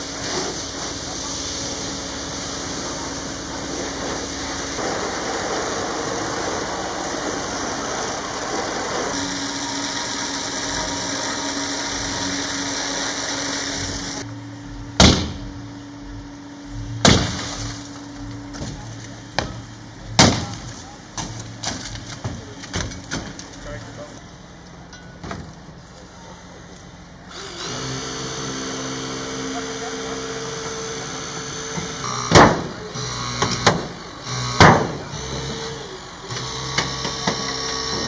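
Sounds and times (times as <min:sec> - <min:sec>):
fire hose spraying water: 0:00.0 - 0:14.2
low hum: 0:13.7 - 0:22.1
sharp cracks and bangs: 0:15.0 - 0:15.5, 0:17.0 - 0:23.6, 0:32.3 - 0:32.8, 0:33.4 - 0:35.0.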